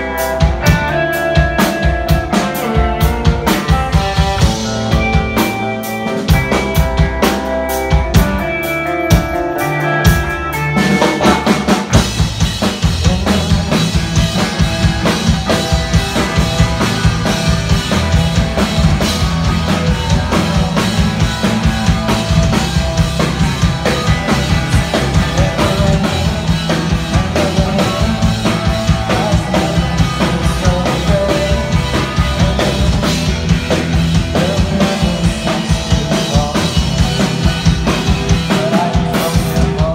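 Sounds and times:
pop-punk band playing: 0.0 - 39.9.

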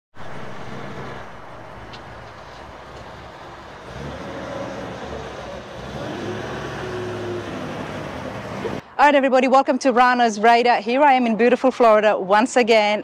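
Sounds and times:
road traffic noise: 0.1 - 12.7
vehicle engine running: 0.2 - 8.8.

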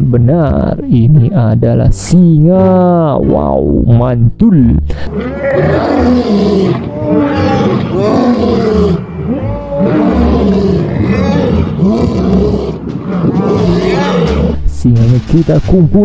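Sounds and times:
lions roaring: 5.1 - 14.7.

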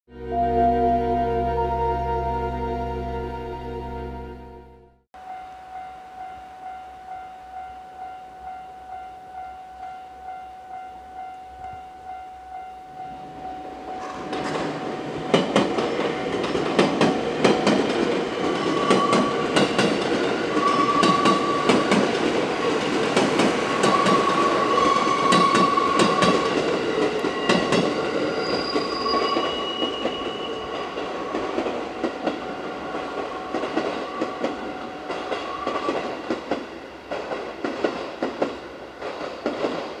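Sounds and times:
train wheel squeals: 18.6 - 22.0, 23.8 - 36.1.

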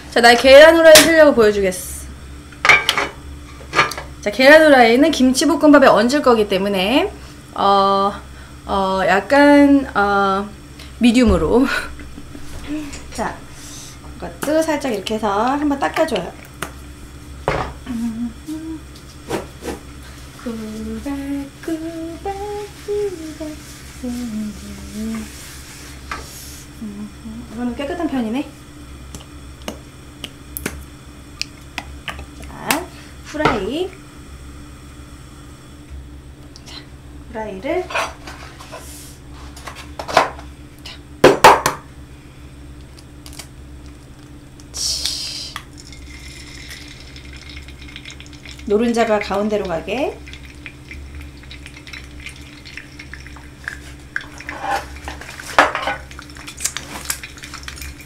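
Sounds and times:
woman humming: 12.6 - 13.3, 17.8 - 19.0, 20.4 - 25.4, 26.7 - 27.8, 44.7 - 45.6
egg knocked on frying pan: 41.2 - 41.8
egg sizzling in hot oil: 45.6 - 58.0.

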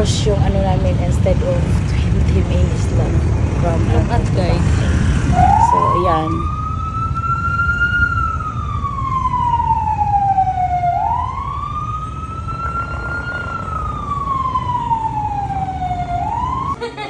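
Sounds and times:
low rumble of traffic: 0.0 - 17.0
siren wailing: 3.2 - 16.8.

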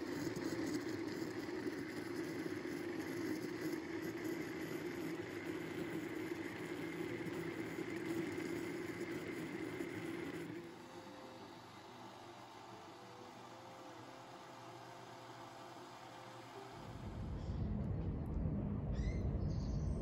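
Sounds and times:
blender motor running: 0.0 - 12.7.

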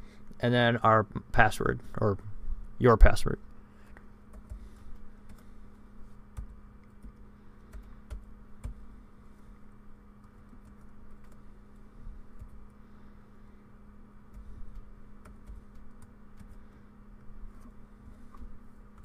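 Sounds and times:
computer keyboard typing: 4.3 - 4.6, 6.3 - 8.8, 10.2 - 11.5, 14.3 - 16.6.

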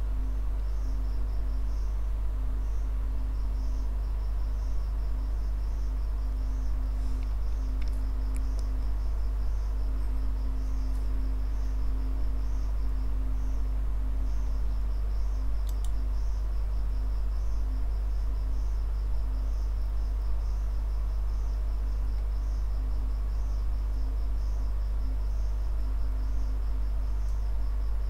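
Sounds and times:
insect chirping: 0.0 - 28.0
click: 7.2 - 8.7, 15.6 - 16.0.

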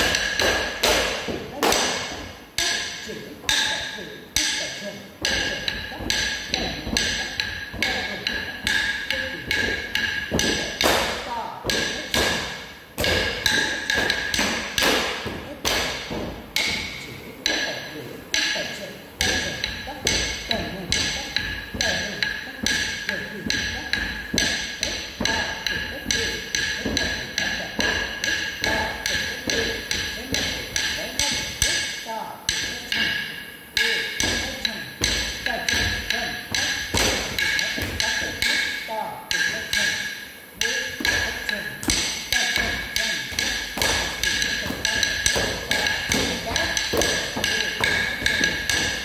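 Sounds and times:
sharp time-keeping strikes: 0.0 - 49.0
sharp ringing taps: 19.2 - 49.0.

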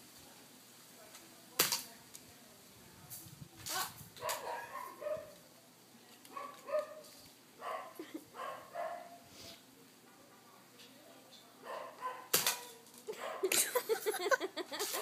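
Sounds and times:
dog barking: 4.2 - 5.4, 6.3 - 9.2, 11.6 - 12.4, 13.1 - 13.5.

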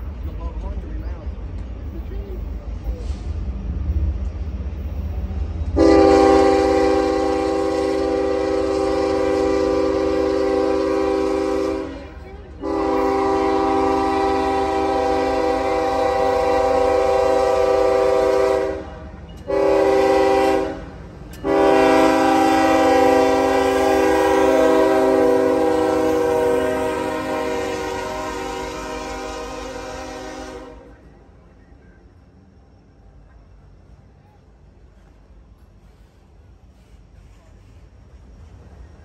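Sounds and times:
low rumble of train: 0.0 - 39.0
locomotive air horn blasts: 5.8 - 31.0.

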